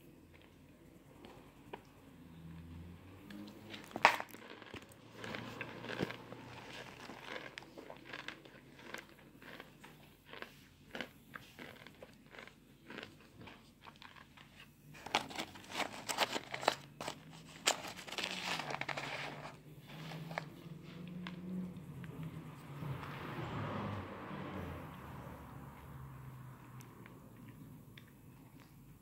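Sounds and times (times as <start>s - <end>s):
cornstarch chunks crunching: 3.7s - 20.4s.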